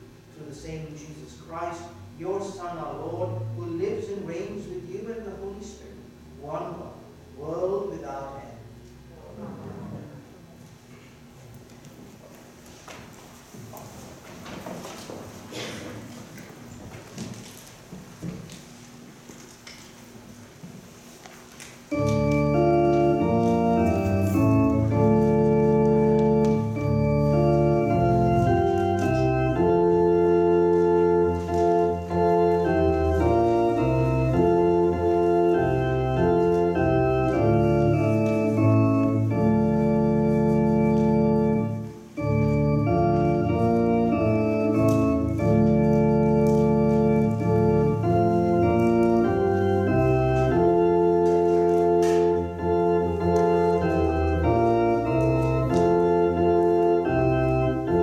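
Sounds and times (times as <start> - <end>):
organ playing sustained chords: 0.0 - 8.8, 21.8 - 58.0.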